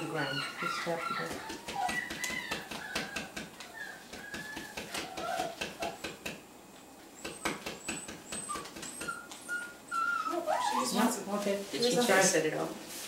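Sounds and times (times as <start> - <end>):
hand tapping on concrete floor: 1.3 - 6.4, 7.2 - 9.2.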